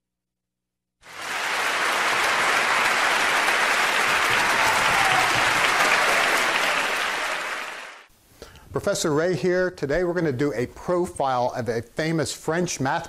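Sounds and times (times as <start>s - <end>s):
crowd applause: 1.0s - 8.1s.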